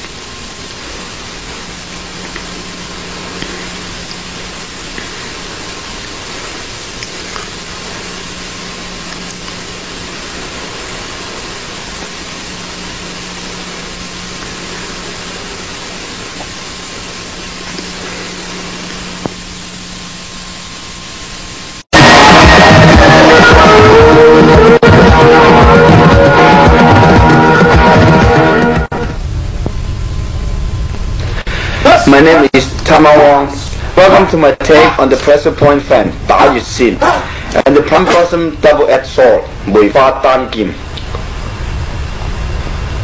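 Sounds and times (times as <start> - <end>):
steady hiss: 0.0 - 43.0
loud rock music: 21.9 - 29.1.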